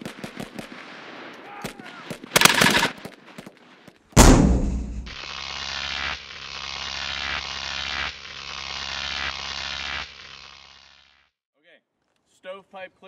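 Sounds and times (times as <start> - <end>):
loud boom: 4.2 - 5.2.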